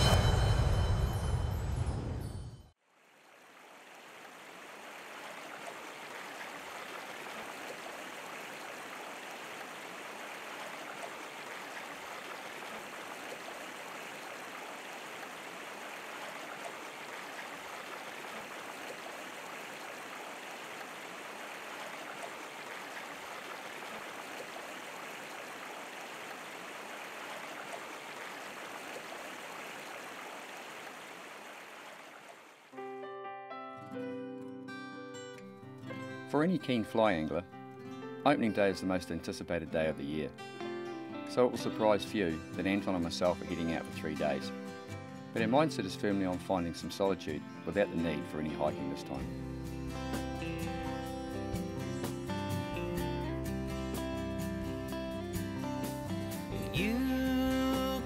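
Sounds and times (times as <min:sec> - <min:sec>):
stream water rushing: 0:02.9 - 0:32.8, 0:41.4 - 0:52.1.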